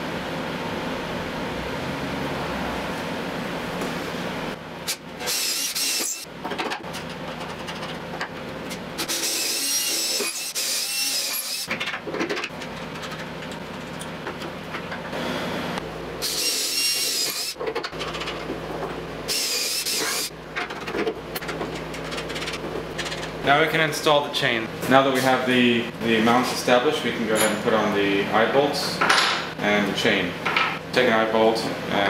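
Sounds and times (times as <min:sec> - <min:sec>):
cordless drill drilling wood: 0:05.2 - 0:06.2
handling knocks and scraping: 0:20.5 - 0:23.4.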